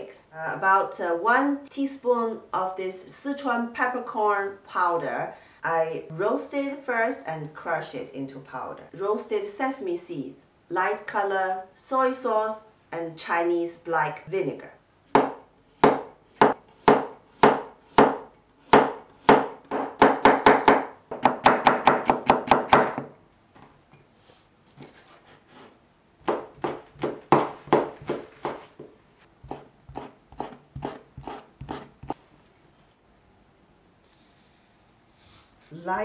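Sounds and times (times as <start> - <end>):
cleaver chopping on wooden board: 15.2 - 23.1, 26.2 - 28.6, 29.4 - 32.2.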